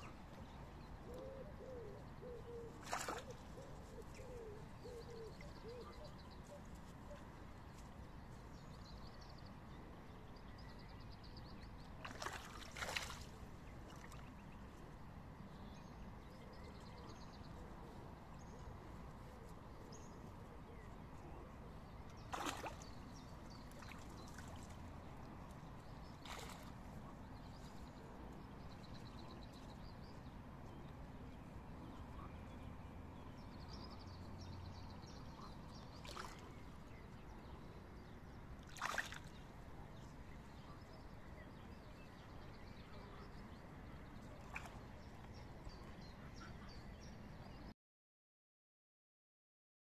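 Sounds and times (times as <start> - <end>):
fish splashing at water surface: 22.3 - 22.8, 38.7 - 39.3.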